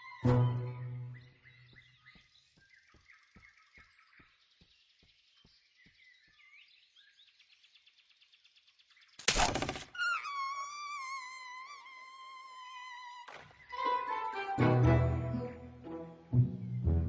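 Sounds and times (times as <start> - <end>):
birds chirping: 0.0 - 14.1
music with vibrato long notes: 13.7 - 17.0.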